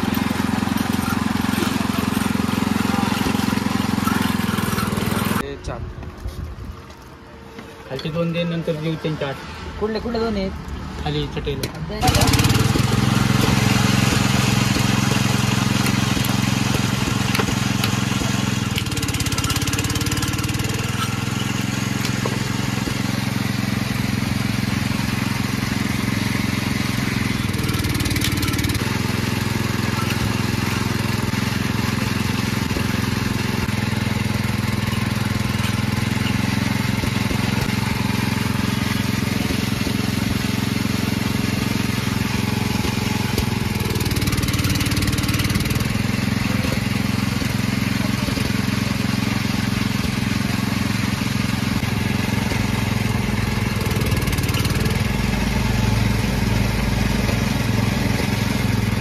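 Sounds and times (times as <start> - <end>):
engine droning steadily: 0.0 - 59.0.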